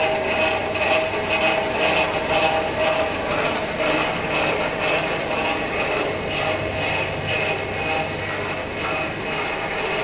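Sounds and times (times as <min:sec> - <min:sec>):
machinery with belt conveyor: 0:00.0 - 0:10.0.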